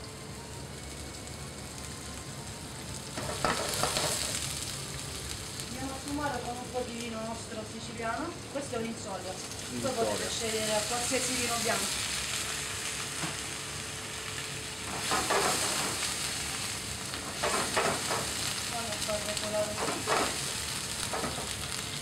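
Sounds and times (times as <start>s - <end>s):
food sizzling in a wok: 0.0s - 22.0s.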